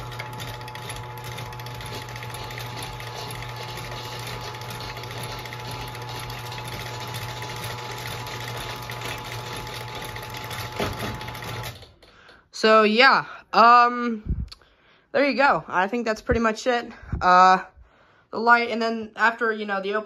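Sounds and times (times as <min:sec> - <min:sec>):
garage door opener motor humming: 0:00.0 - 0:12.4.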